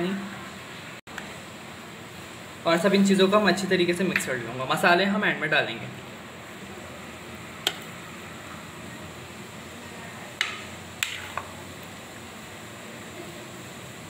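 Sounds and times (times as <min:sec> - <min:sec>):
steady background hum: 0:00.0 - 0:13.2
food being stirred: 0:10.3 - 0:12.0.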